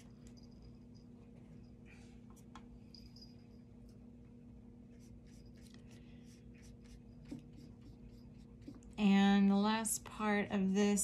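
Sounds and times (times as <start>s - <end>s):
low hum: 0.0s - 11.0s
brush stroking paper: 4.9s - 8.9s.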